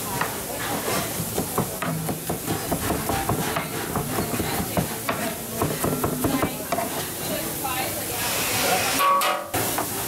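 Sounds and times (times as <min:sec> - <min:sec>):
knife chopping on cutting board: 0:01.2 - 0:07.0.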